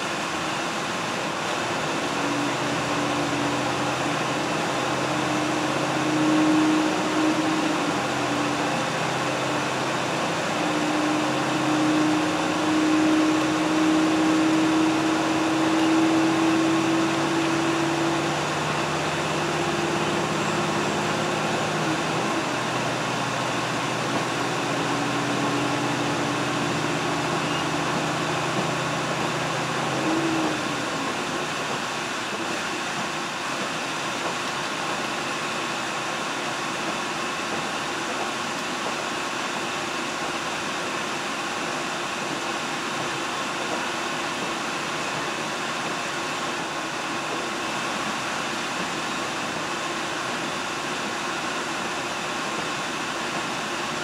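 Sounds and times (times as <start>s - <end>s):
low engine drone: 0.0s - 33.0s
train wheels rumbling on rails: 0.0s - 54.0s.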